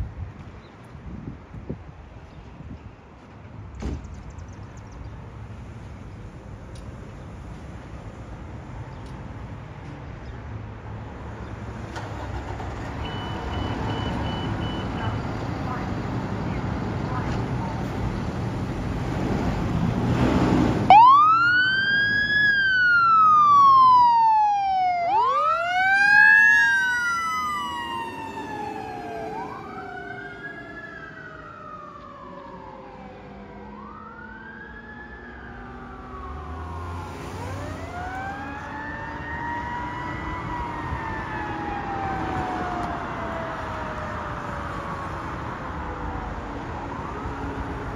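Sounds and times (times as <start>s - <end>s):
fire engine sirens wailing: 20.5s - 47.9s
second siren tone gliding: 20.9s - 45.6s.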